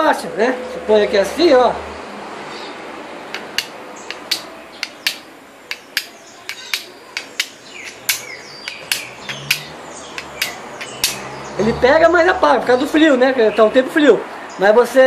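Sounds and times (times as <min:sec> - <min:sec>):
knife blade striking stone: 0:03.3 - 0:11.3.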